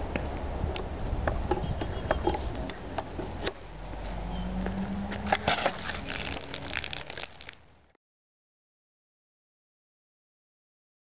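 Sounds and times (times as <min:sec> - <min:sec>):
low outdoor rumble: 0:00.0 - 0:08.0
shoes stepping on asphalt: 0:02.0 - 0:07.8.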